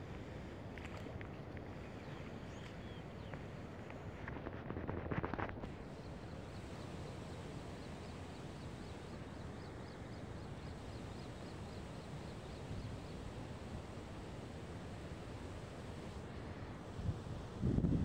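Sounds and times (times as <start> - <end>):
wind buffeting microphone: 16.8 - 18.0.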